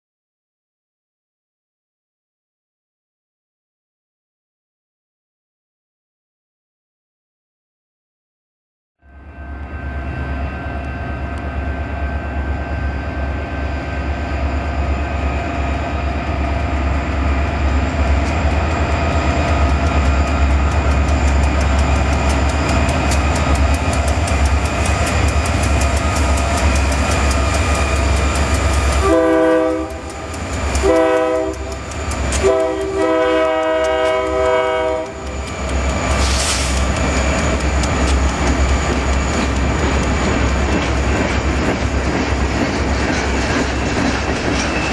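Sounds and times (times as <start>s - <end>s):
diesel locomotives rumbling: 9.1s - 44.9s.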